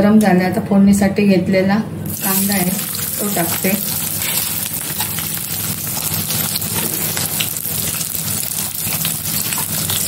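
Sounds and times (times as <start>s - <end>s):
low steady hum: 0.0s - 10.0s
onion sizzling in hot oil: 2.1s - 10.0s.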